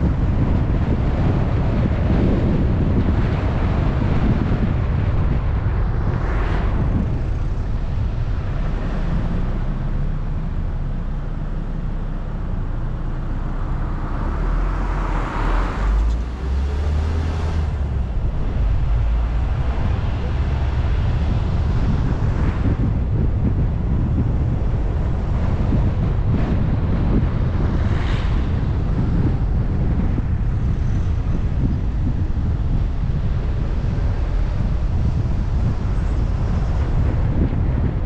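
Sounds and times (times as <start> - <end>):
car engine and road noise: 0.0 - 38.0.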